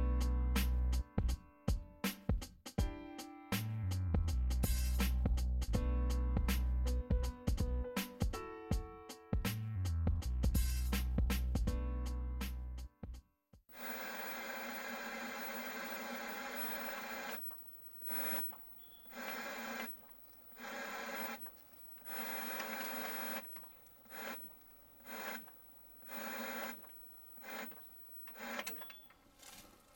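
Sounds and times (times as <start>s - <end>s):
tv static hiss: 13.8s - 28.8s.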